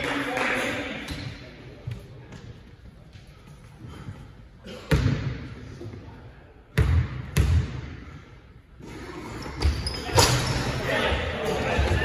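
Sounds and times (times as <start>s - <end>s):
basketball bouncing on wooden court: 6.7s - 7.8s.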